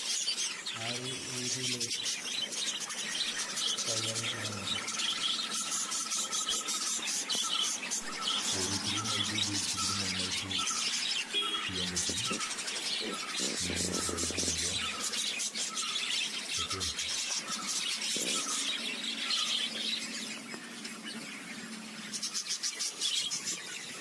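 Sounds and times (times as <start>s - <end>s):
budgerigars chirping: 0.0s - 24.0s
low hum-like murmur: 8.1s - 10.6s, 11.7s - 12.5s, 13.1s - 14.9s.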